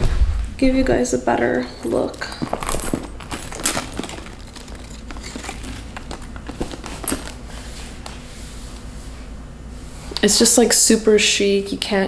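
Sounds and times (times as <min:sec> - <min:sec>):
bag rustling: 0:01.6 - 0:08.3
chain strap clicks: 0:02.3 - 0:06.3.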